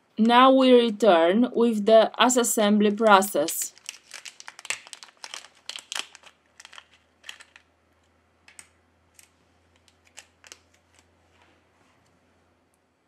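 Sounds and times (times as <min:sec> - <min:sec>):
plastic bag crinkling: 0:02.9 - 0:07.8, 0:08.5 - 0:11.2.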